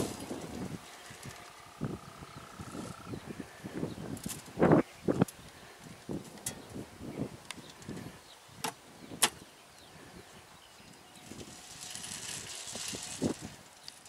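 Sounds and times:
seed pouring hiss: 0:11.2 - 0:14.0.

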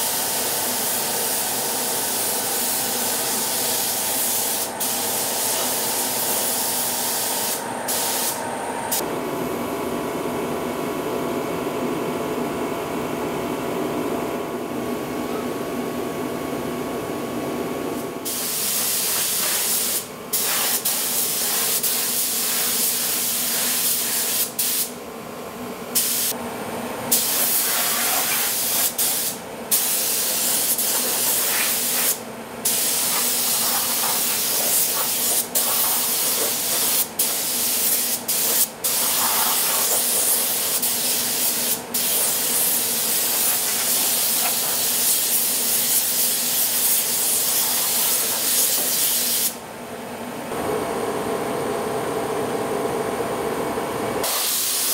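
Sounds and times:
paint spray gun hissing: 0:00.0 - 0:09.0, 0:18.3 - 0:24.9, 0:26.0 - 0:26.4, 0:27.1 - 0:49.6, 0:54.2 - 0:54.9.

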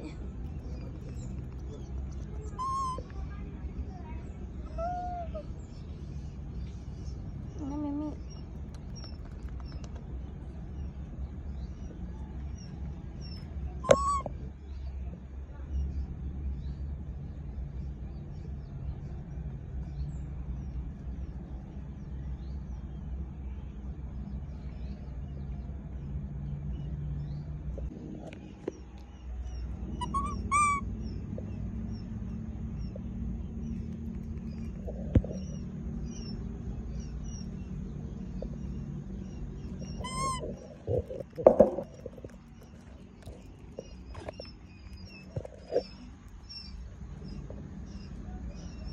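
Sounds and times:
low steady hum: 0:00.0 - 0:48.9
small birds chirping: 0:00.0 - 0:48.9
high squeaky animal calls: 0:02.5 - 0:03.1, 0:13.8 - 0:14.4, 0:30.0 - 0:30.9, 0:39.8 - 0:42.0.

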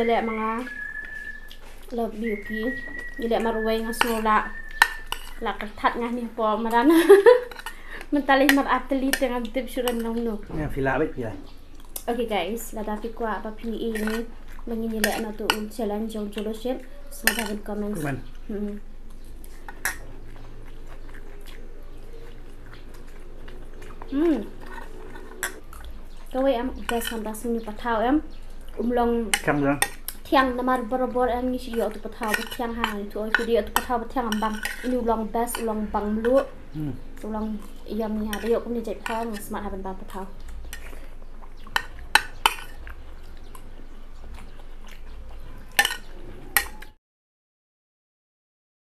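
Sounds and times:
quiet chewing: 0:00.0 - 0:10.3, 0:11.4 - 0:12.2, 0:12.9 - 0:30.9, 0:31.6 - 0:47.0
spoon clinking against plate: 0:03.9 - 0:05.4, 0:17.2 - 0:18.1, 0:32.2 - 0:34.9, 0:45.7 - 0:46.9
spoon clinking on plate: 0:04.0 - 0:05.4, 0:17.3 - 0:17.6, 0:45.8 - 0:46.9
food handling on plates: 0:17.2 - 0:17.6.

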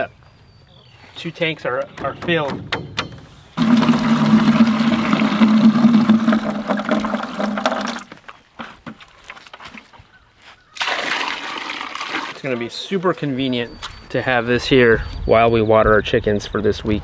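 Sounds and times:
water running into plastic bucket: 0:03.6 - 0:08.2, 0:10.8 - 0:12.6.

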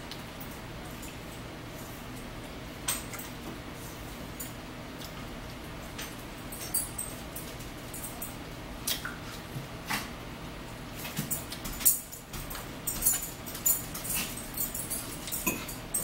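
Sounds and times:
forks clinking on plates: 0:06.0 - 0:08.4, 0:11.0 - 0:16.0.

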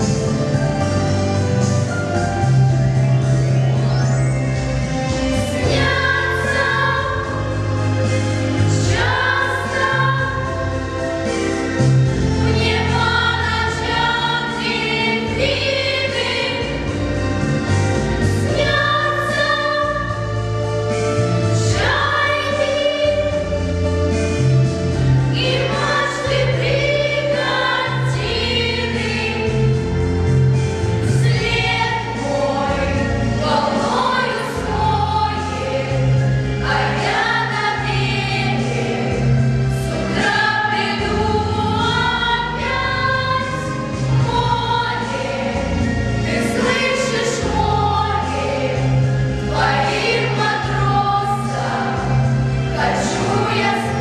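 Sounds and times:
low instrumental accompaniment: 0:00.0 - 0:54.0
girls singing together: 0:05.5 - 0:10.7, 0:12.4 - 0:16.9, 0:18.3 - 0:20.4, 0:21.6 - 0:23.6, 0:25.3 - 0:29.7, 0:31.0 - 0:54.0.

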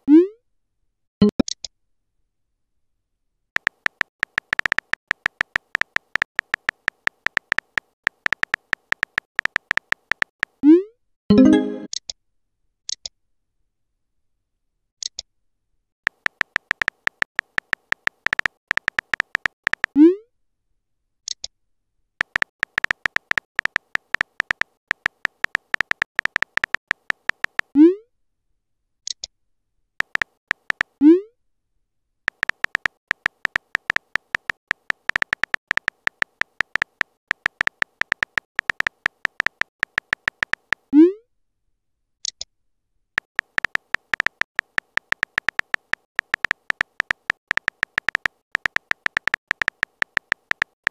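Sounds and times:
electronic key-tap clicks: 0:03.6 - 0:10.6, 0:16.1 - 0:20.0, 0:22.2 - 0:27.7, 0:30.0 - 0:31.0, 0:32.3 - 0:40.9, 0:43.2 - 0:50.9.

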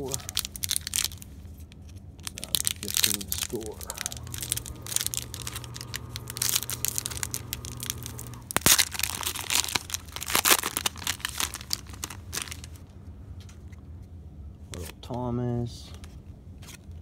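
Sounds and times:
foil wrapper crinkling and tearing: 0:00.0 - 0:12.9.

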